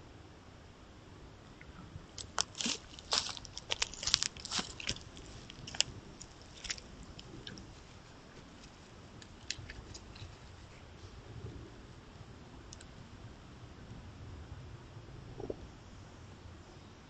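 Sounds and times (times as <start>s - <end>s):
elk crunching and clicking: 1.6s - 10.8s.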